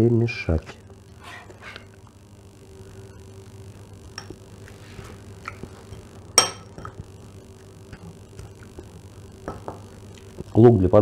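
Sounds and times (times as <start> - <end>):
spoon stirring in ceramic bowl: 5.4 - 8.9
spoon clinking against bowl: 6.4 - 7.0.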